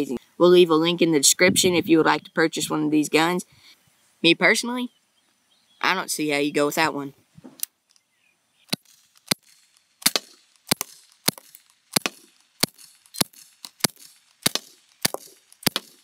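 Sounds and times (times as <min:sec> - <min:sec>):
air pistol shots popping: 0:08.7 - 0:16.0.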